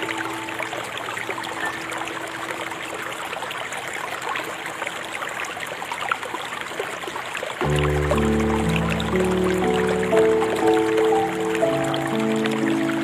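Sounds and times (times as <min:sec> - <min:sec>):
river water flowing: 0:00.0 - 0:13.0
small trickling splashes: 0:00.0 - 0:13.0.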